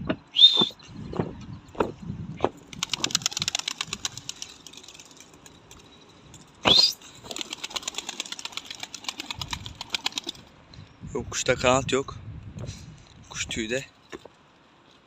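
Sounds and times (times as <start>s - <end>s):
pigeon wings flapping: 2.6s - 5.8s, 6.7s - 10.5s.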